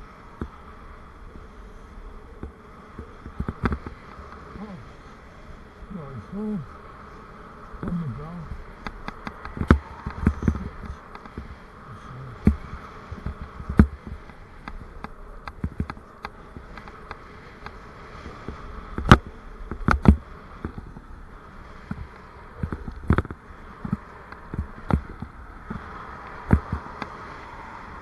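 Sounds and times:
bicycle ride buzzing hum: 0:00.0 - 0:28.0
bike knocks and rattles over bumps: 0:08.8 - 0:11.5.

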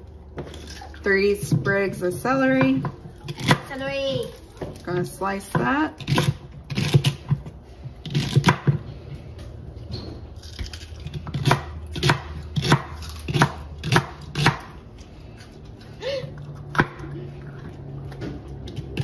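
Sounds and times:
knife chopping celery on board: 0:11.0 - 0:14.8.

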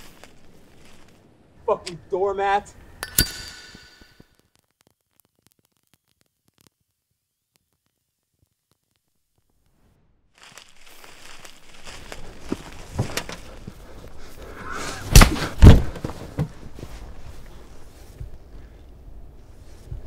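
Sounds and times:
scuffling movement: 0:10.4 - 0:18.7
heavy thuds: 0:15.0 - 0:17.0.

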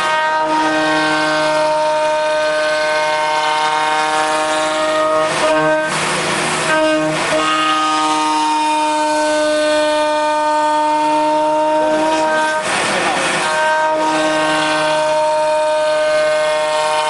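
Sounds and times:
router bit cutting wood: 0:11.9 - 0:17.0.

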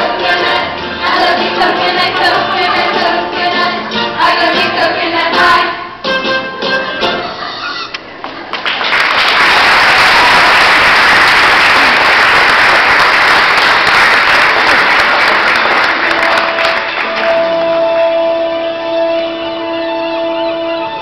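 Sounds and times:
audience applauding: 0:08.3 - 0:17.6.

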